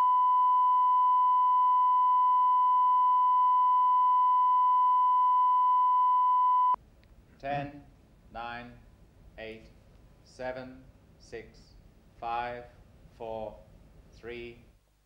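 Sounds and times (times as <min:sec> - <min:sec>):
pure line-up tone: 0:00.0 - 0:06.8.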